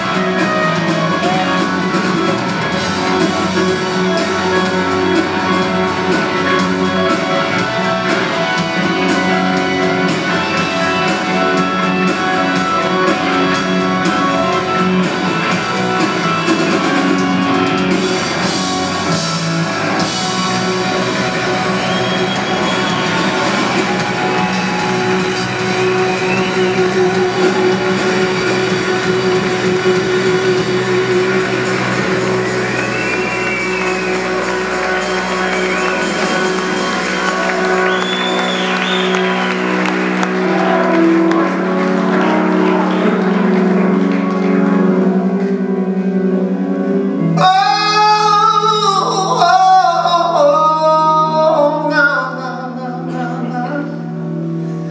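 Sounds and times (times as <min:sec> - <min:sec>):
rock band playing held chords: 0:00.0 - 0:54.9
man singing: 0:47.3 - 0:54.3.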